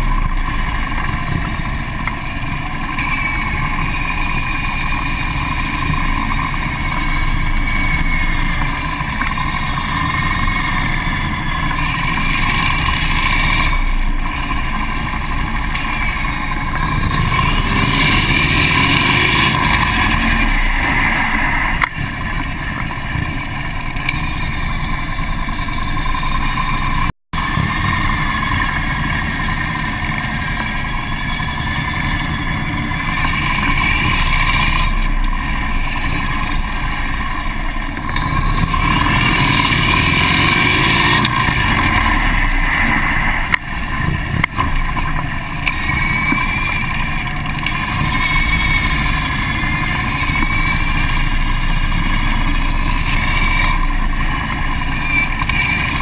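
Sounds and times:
motorcycle engine running: 0:00.0 - 0:56.0
other motorcycles ahead: 0:00.0 - 0:56.0.

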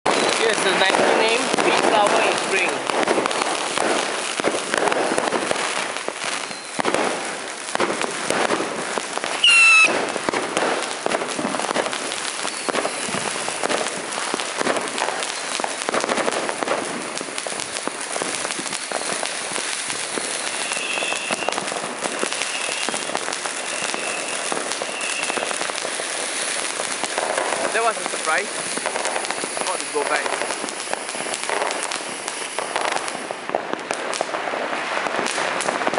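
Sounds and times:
firework fountain crackling hiss: 0:00.1 - 0:35.9
screaming firework whistles: 0:06.3 - 0:06.9, 0:09.3 - 0:10.1, 0:12.3 - 0:13.7, 0:18.7 - 0:19.3, 0:20.1 - 0:25.7.

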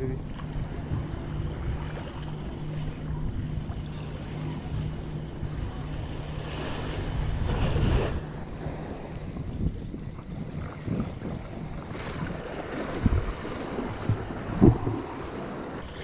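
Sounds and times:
faint low hum: 0:00.0 - 0:12.4
small waves lapping: 0:00.0 - 0:16.0
wind buffeting microphone: 0:00.0 - 0:16.0.

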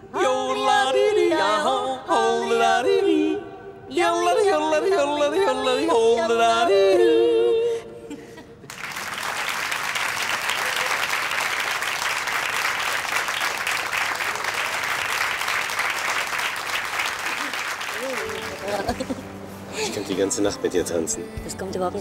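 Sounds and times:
audience clapping: 0:08.7 - 0:19.2.

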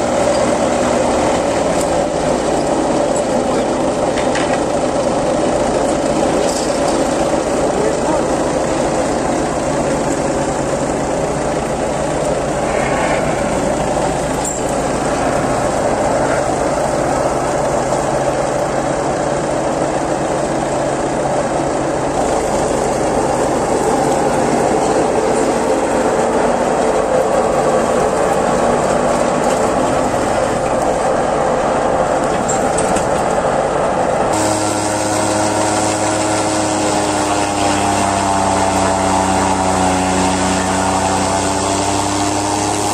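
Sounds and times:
forage chopper cutting grass: 0:00.0 - 0:33.7, 0:34.3 - 0:42.9
tractor engine under load: 0:00.0 - 0:42.9.

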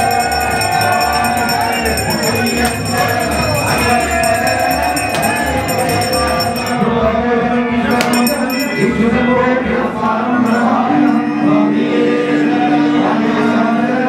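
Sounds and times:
drum beat: 0:00.0 - 0:06.6
jingling percussion: 0:00.0 - 0:07.1, 0:07.9 - 0:09.4, 0:10.4 - 0:12.0
voices singing: 0:00.0 - 0:14.0.

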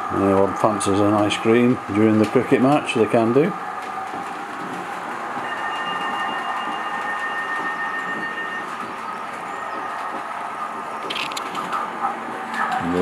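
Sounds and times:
model train wheels rumbling on rail: 0:00.0 - 0:08.5.

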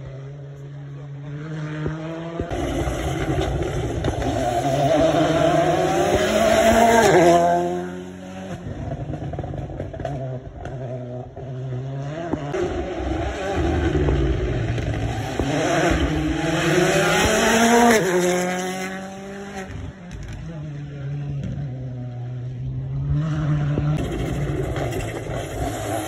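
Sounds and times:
rally car engine passing by: 0:00.0 - 0:26.0.

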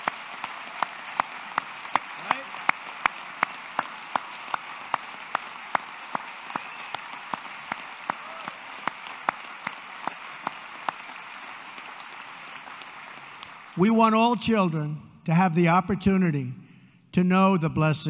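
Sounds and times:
close single hand claps: 0:00.0 - 0:13.8
audience applauding: 0:00.0 - 0:14.6.

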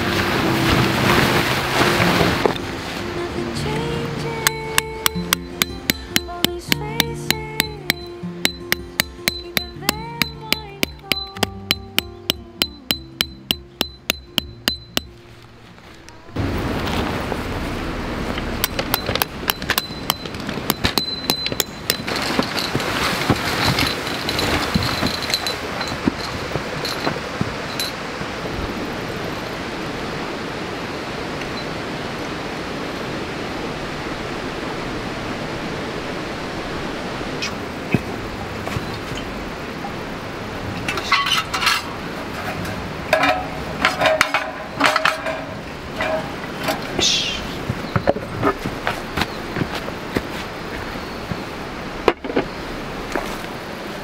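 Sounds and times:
steady rushing noise: 0:00.0 - 0:06.3, 0:12.6 - 0:54.0
metal clinks and ringing knocks: 0:07.3 - 0:15.2, 0:18.4 - 0:28.0, 0:43.1 - 0:46.9
camping gear clicks and clinks: 0:18.4 - 0:28.4.

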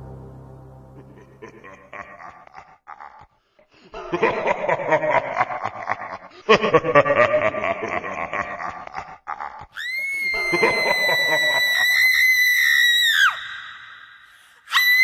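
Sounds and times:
laughter: 0:01.1 - 0:11.8.

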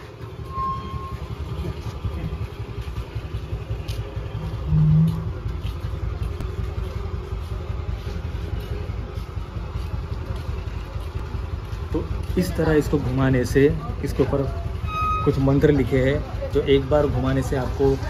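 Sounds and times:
loud low hum: 0:00.0 - 0:12.4.

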